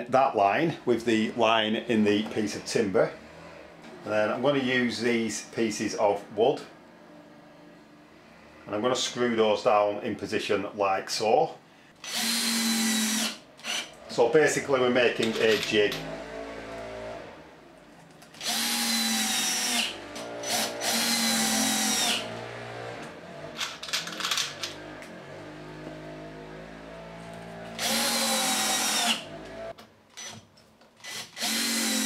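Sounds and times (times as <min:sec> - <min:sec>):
drill driving screws into wood: 0:12.0 - 0:14.0, 0:18.3 - 0:22.4, 0:27.8 - 0:29.6, 0:30.2 - 0:32.0.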